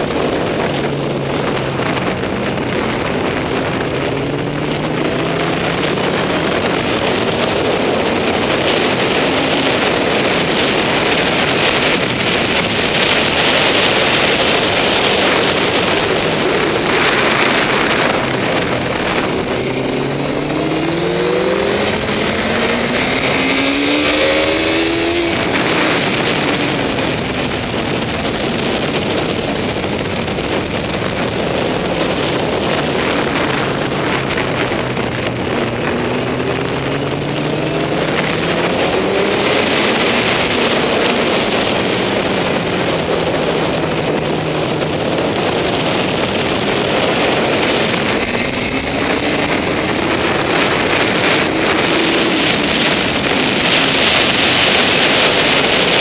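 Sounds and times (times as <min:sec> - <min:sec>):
motorcycle engine accelerating: 0:00.0 - 0:56.0
wind rushing over microphone: 0:00.0 - 0:56.0.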